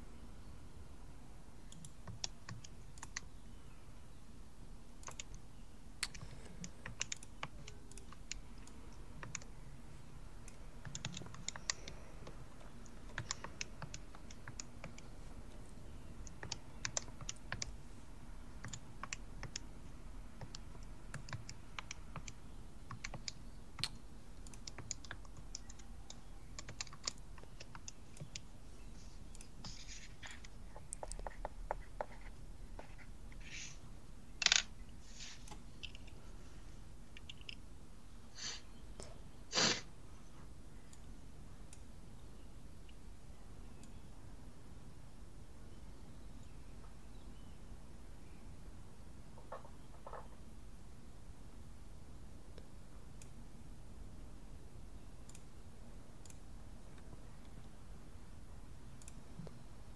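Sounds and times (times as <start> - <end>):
faint low hum: 0.0 - 59.9
computer keyboard and mouse clicks: 1.7 - 3.3, 5.0 - 5.4, 6.0 - 9.5, 10.4 - 15.1, 16.2 - 17.8, 18.6 - 19.7, 20.4 - 28.5, 29.3 - 33.1, 35.4 - 36.2, 37.1 - 37.6.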